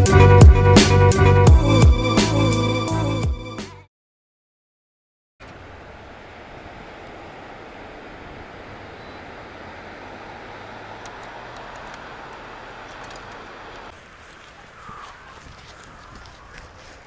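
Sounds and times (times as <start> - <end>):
breaking surf: 5.4 - 14.7
wind across microphone: 5.6 - 17.0.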